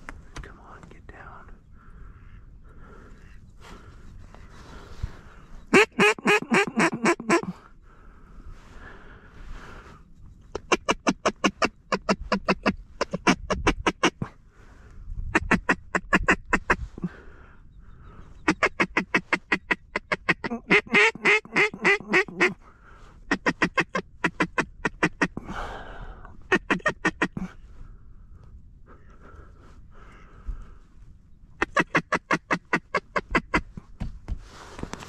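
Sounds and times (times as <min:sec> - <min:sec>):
duck call quacks: 0:05.7 - 0:07.6, 0:10.6 - 0:14.3, 0:15.4 - 0:17.1, 0:18.4 - 0:22.6, 0:23.3 - 0:25.4, 0:26.5 - 0:27.6, 0:31.6 - 0:33.7.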